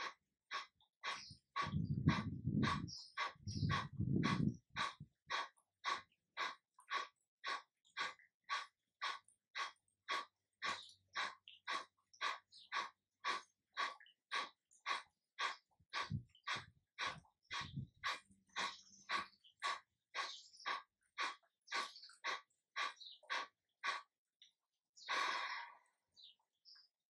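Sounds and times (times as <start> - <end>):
forceful nasal exhalations: 25.1 - 25.9.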